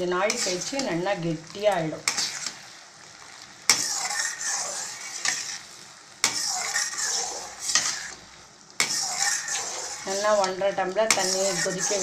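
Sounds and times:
metal ladle scraping a pan: 0:00.3 - 0:00.9, 0:02.0 - 0:02.6, 0:03.7 - 0:08.2, 0:08.8 - 0:12.0.

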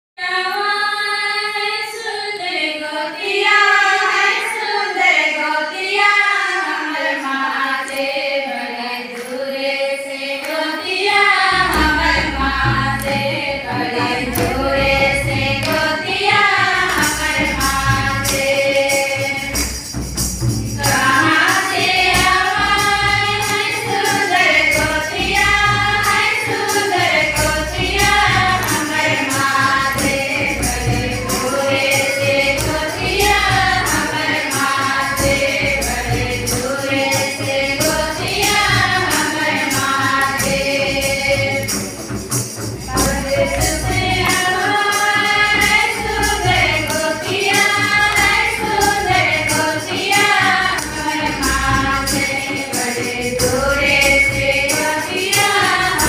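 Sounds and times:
women singing in unison: 0:00.2 - 0:20.0, 0:20.7 - 0:41.8, 0:42.8 - 0:56.0
deep beating accompaniment: 0:11.4 - 0:56.0.

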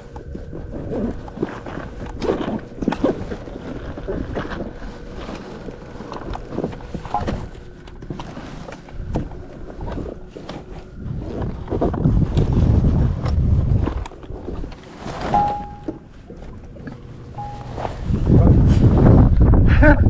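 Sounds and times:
wind buffeting microphone: 0:00.0 - 0:14.8, 0:15.4 - 0:20.0
water slapping boat hull: 0:00.0 - 0:19.4
faint steady whine: 0:00.0 - 0:20.0.

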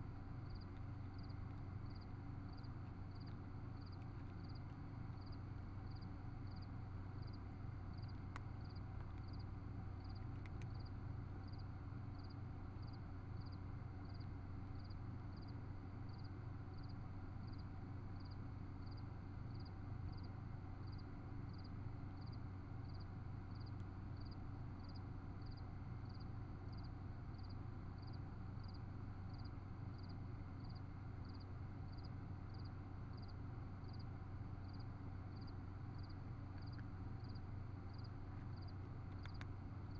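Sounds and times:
low electronic hum: 0:00.0 - 0:39.9
faint clicks: 0:10.1 - 0:10.9, 0:39.1 - 0:39.6.

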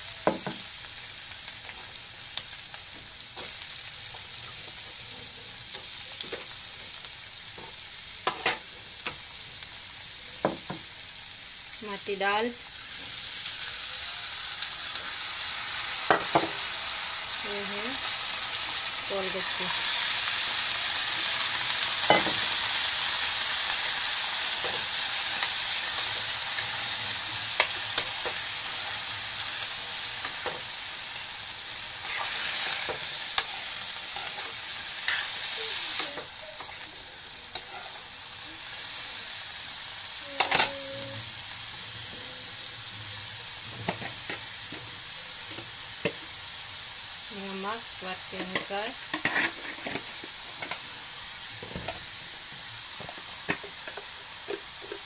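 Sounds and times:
vegetables sizzling in hot oil: 0:00.0 - 0:55.0.

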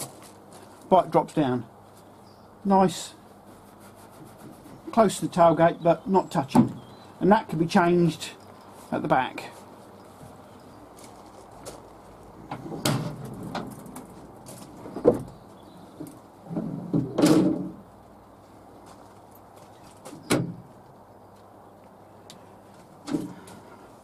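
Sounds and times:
door knocks and clunks: 0:06.5 - 0:06.8, 0:14.9 - 0:15.4, 0:16.5 - 0:17.8, 0:20.2 - 0:20.7
rattling clunk: 0:12.5 - 0:14.1, 0:16.5 - 0:17.8.

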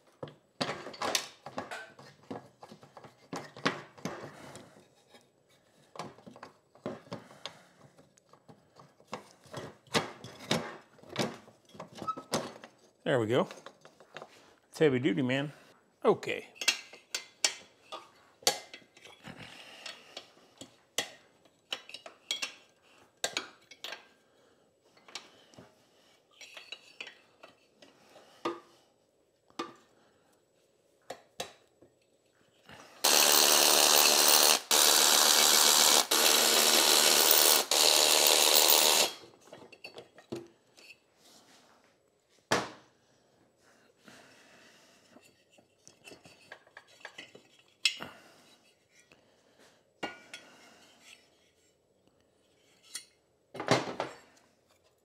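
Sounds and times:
cordless power driver running: 0:33.0 - 0:39.2
hand ratchet clicking: 0:33.0 - 0:39.2.

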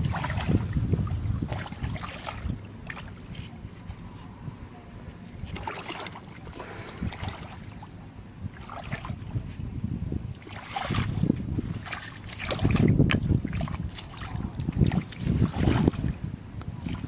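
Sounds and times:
feet wading through muddy water: 0:00.0 - 0:04.1, 0:05.4 - 0:09.5, 0:10.3 - 0:17.0.

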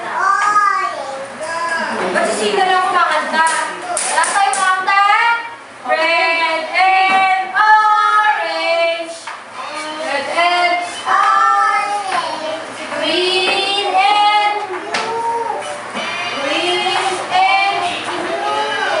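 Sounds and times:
woman singing: 0:04.3 - 0:09.2, 0:10.1 - 0:11.7, 0:12.8 - 0:15.2, 0:15.9 - 0:19.0
children singing: 0:09.6 - 0:19.0.

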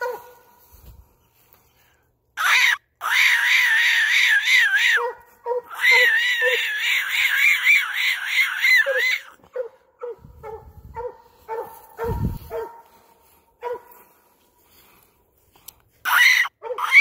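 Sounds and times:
hound barking: 0:00.0 - 0:00.5, 0:04.8 - 0:06.1, 0:08.9 - 0:14.0, 0:16.6 - 0:17.0.

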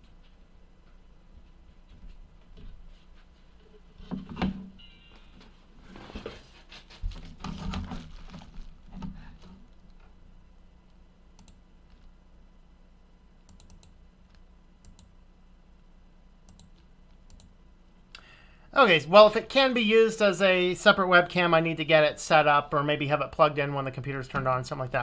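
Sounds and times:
rustling and handling noise: 0:00.0 - 0:10.2
computer clicks: 0:11.4 - 0:12.0, 0:13.5 - 0:15.2, 0:16.5 - 0:17.6.

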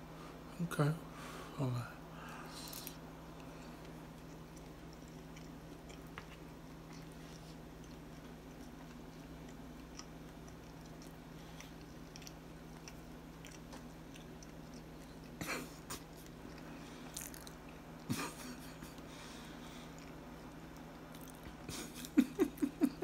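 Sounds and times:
steady low hum: 0:00.0 - 0:23.0
person chewing food: 0:02.2 - 0:23.0.

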